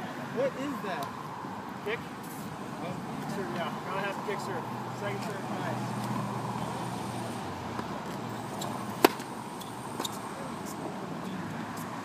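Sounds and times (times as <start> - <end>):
tennis racket hitting ball: 8.6 - 9.3.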